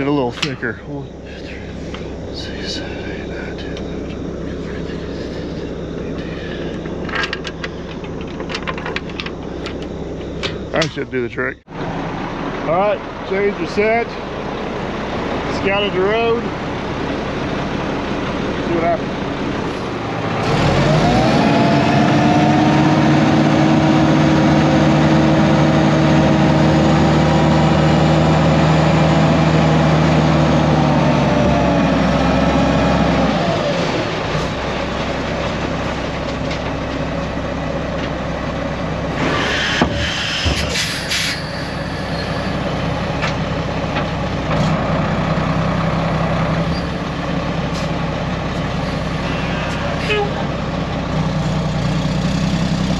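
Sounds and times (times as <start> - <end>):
diesel truck engine revving: 0.0 - 52.9
hiss and clatter: 39.2 - 42.4.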